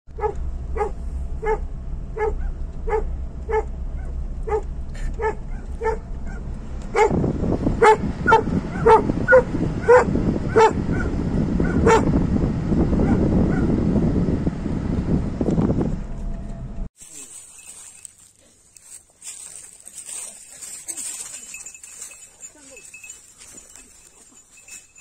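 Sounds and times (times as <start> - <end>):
road rumble: 0.1 - 25.0
dog barking excitedly: 0.2 - 7.2, 7.8 - 12.2, 13.0 - 13.8
wind noise: 4.5 - 16.9.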